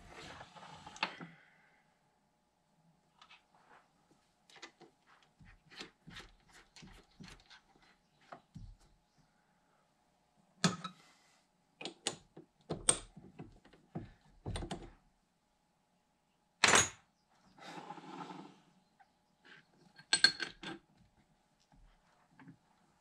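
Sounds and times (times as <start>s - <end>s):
faint steady hum: 0.1s - 6.6s, 7.4s - 17.6s.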